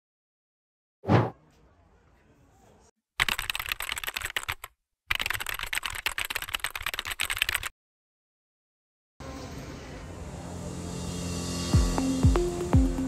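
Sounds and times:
rapid keyboard typing: 3.2 - 7.7.

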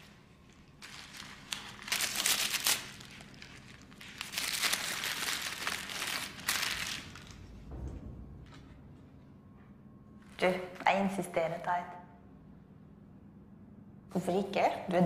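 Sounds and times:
wrapping paper crinkling: 0.0 - 7.4.

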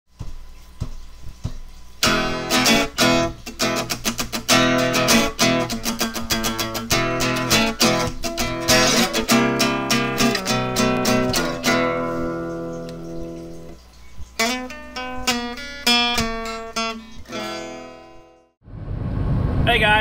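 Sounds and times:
strummed guitar music: 2.0 - 13.8, 14.4 - 18.5.

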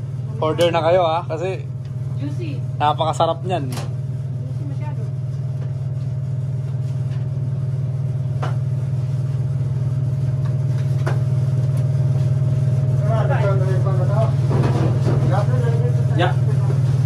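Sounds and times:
low machine hum: 0.0 - 17.0.

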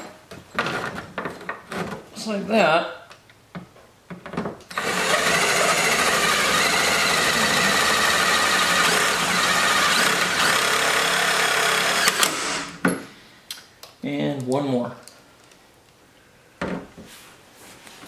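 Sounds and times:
power drill driving a screw: 4.7 - 12.8.

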